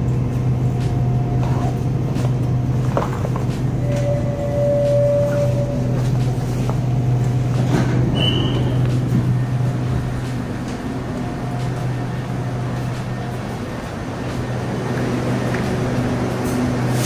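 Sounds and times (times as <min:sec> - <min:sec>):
traction equipment humming: 0:00.0 - 0:17.0
wheel and rail noise: 0:00.0 - 0:17.0
brief high tone: 0:03.8 - 0:06.1.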